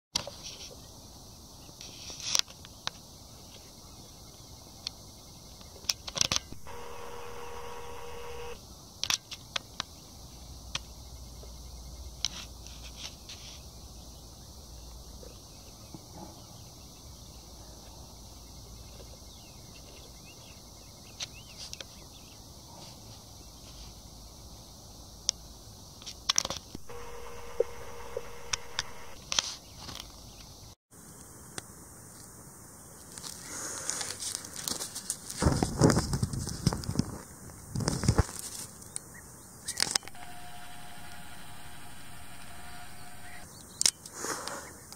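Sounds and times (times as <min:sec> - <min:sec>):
steady high hiss: 0:06.5 - 0:09.0, 0:26.8 - 0:29.2, 0:40.1 - 0:43.5
steady pitched hum: 0:06.6 - 0:08.6, 0:26.8 - 0:29.2, 0:40.0 - 0:43.5
sharp clicks and crackles: 0:26.3 - 0:29.4.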